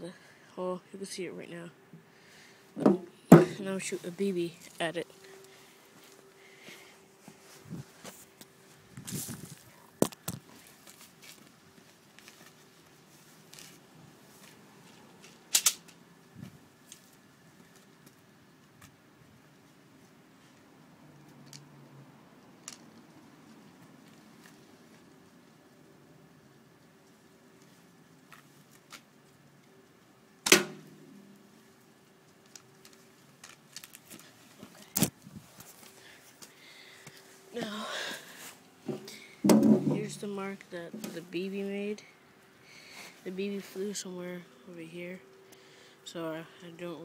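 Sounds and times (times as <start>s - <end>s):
slingshot sharp clicks: 15.5s - 16.0s
slingshot snap: 15.5s - 16.0s, 30.4s - 30.9s.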